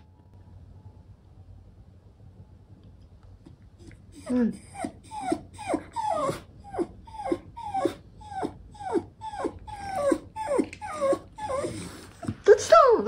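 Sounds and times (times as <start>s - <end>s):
dog whimpering: 3.8s - 12.5s.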